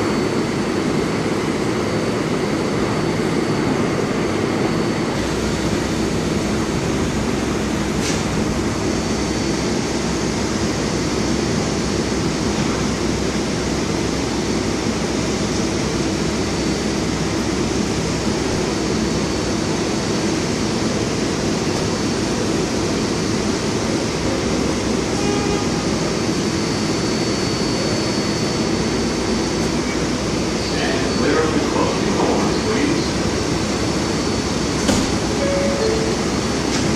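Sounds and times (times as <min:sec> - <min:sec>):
train equipment hum: 0:00.0 - 0:26.5, 0:28.6 - 0:36.9
thin high whine: 0:27.7 - 0:34.5, 0:35.2 - 0:36.9.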